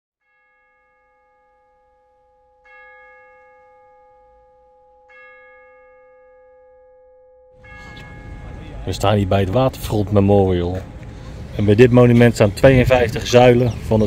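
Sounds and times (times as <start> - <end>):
bell-like chime ringing: 0.2 - 10.6.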